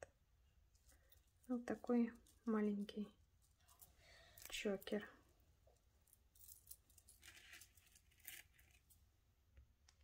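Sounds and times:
jewelry clinking and rustling: 0.7 - 9.0.

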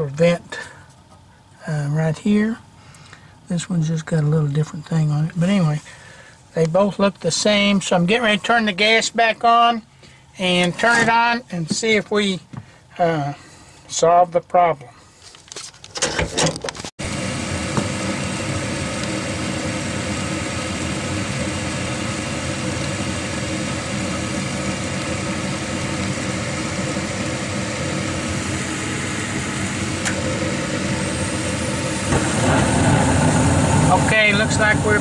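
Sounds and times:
furnace motor humming: 16.5 - 35.0.

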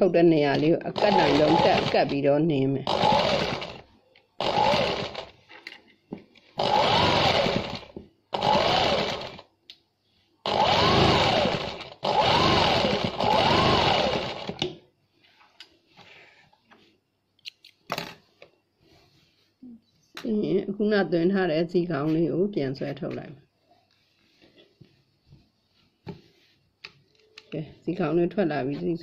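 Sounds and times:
electric sewing machine stitching: 0.9 - 2.2, 2.8 - 5.4, 6.6 - 9.5, 10.4 - 14.6.

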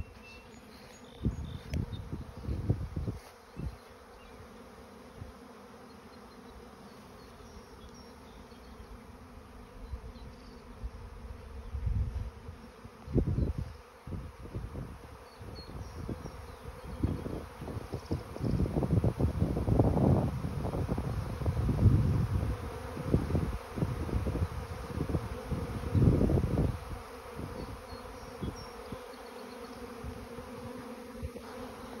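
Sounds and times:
bees buzzing: 0.0 - 32.0
wind buffeting microphone: 1.2 - 3.8, 10.8 - 29.0.

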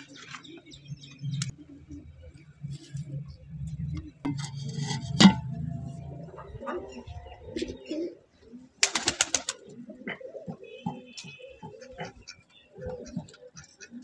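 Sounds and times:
pigeons cooing: 0.0 - 4.3, 5.5 - 14.0.

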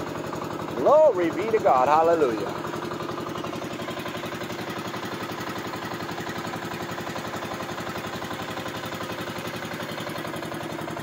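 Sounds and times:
boat engine pulsing: 0.0 - 11.0.

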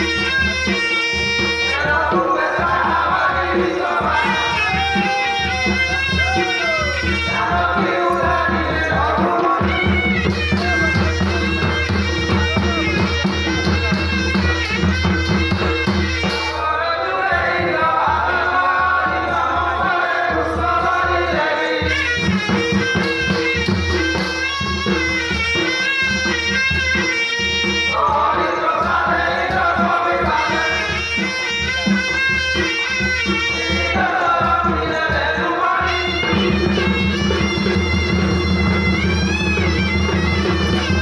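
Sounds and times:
voices singing into microphones: 0.0 - 14.0, 16.3 - 22.8, 27.7 - 38.2
barrel drums beating: 0.0 - 16.6.

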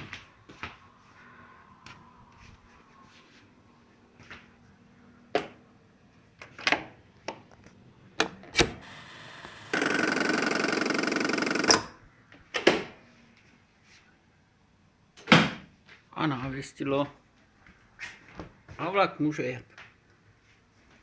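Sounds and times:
electric rattle: 8.6 - 11.9.

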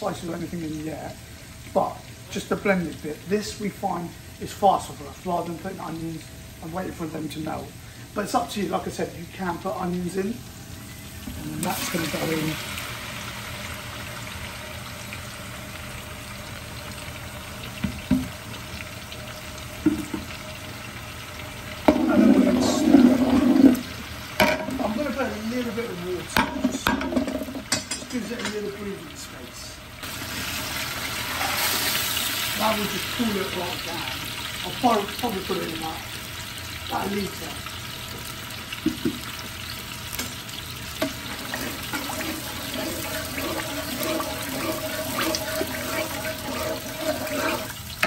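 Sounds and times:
curry bubbling and frying: 9.6 - 26.0, 30.0 - 48.0
spatula scraping pot squeakily: 41.2 - 48.0.

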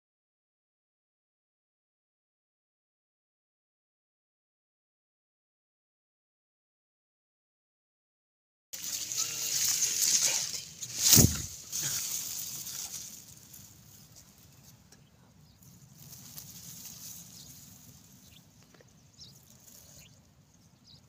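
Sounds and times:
stalks rustling against microphone: 8.8 - 20.1.

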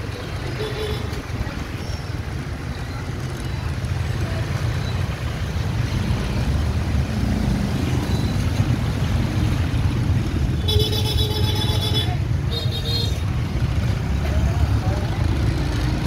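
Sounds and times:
street traffic noise: 0.0 - 16.0.

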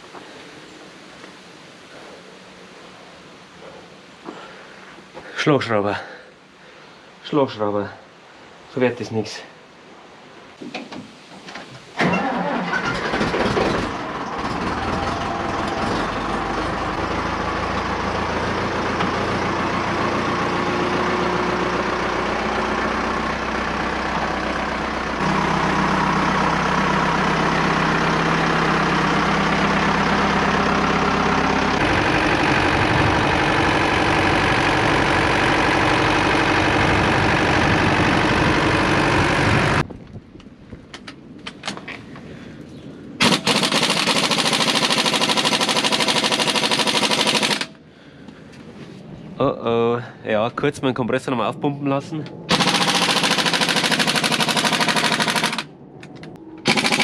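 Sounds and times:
tractor diesel engine running: 12.0 - 39.9, 43.2 - 47.9, 52.2 - 57.0
air impact wrench: 43.2 - 47.8, 52.5 - 55.7, 56.6 - 57.0.

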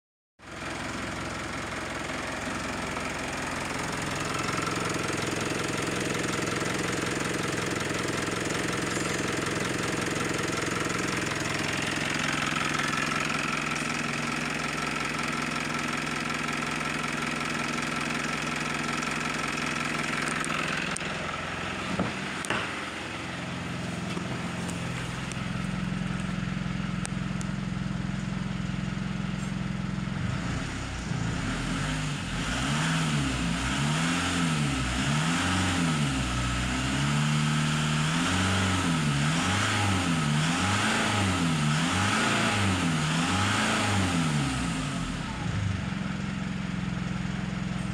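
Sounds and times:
diesel engine idling and revving: 0.4 - 47.9
sharp knocks: 21.9 - 22.9.

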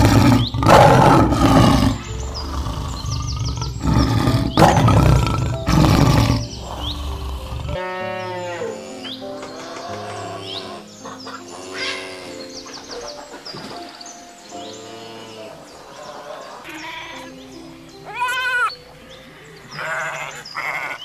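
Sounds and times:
lion roaring: 0.0 - 8.7
background music: 0.0 - 21.0
birds chirping: 0.0 - 21.0.

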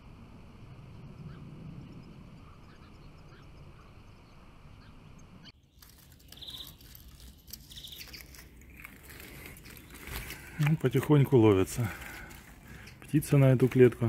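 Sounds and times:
low rumble: 0.0 - 5.5
buzzy bird trills: 1.0 - 10.4
finches chirping: 1.2 - 10.4, 12.4 - 13.5
birds rustling in a cage: 5.7 - 13.8.

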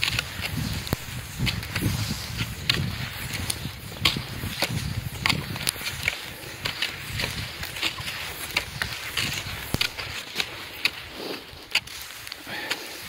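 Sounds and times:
footsteps in snow: 0.0 - 13.0.

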